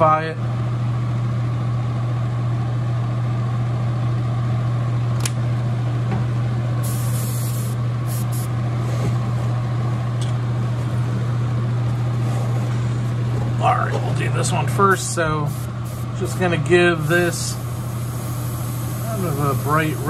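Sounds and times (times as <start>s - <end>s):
exhaust fan humming: 0.0s - 20.0s
short air hisses: 6.8s - 8.5s.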